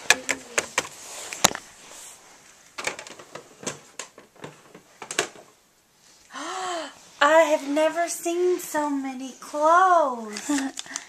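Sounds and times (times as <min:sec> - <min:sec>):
plastic toys clicking and knocking: 0:00.0 - 0:01.6, 0:02.8 - 0:05.5, 0:10.3 - 0:11.0.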